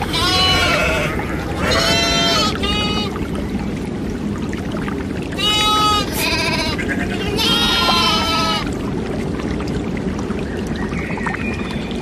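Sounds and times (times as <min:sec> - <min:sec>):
livestock bleating: 0:00.0 - 0:03.1, 0:05.4 - 0:08.6.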